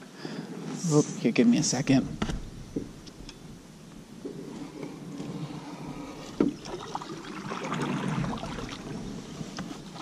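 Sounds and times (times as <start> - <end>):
water and canoe hull noises: 2.1 - 10.0.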